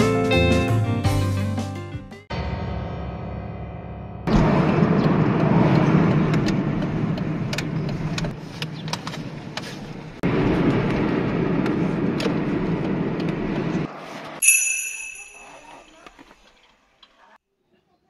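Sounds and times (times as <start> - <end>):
car road and engine noise: 4.3 - 14.4
short high ringing tone: 14.4 - 16.0.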